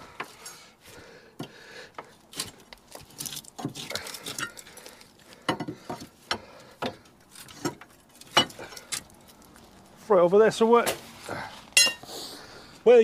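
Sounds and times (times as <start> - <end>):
metal knocks clinks and scrapes: 7.3 - 9.1, 11.8 - 12.1.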